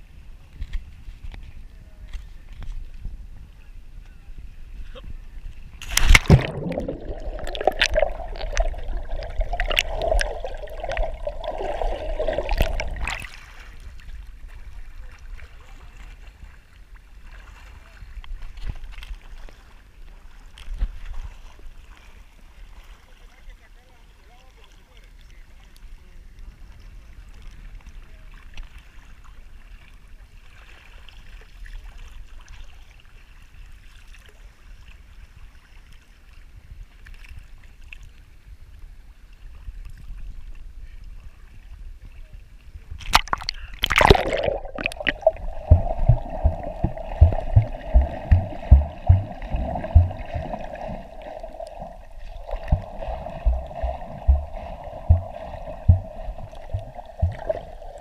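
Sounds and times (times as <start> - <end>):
low underwater thumps: 5.8 - 13.3, 43.0 - 58.0
camera splashing into water: 5.8 - 13.6, 43.0 - 58.0
water sloshing: 5.8 - 14.6, 43.0 - 58.0.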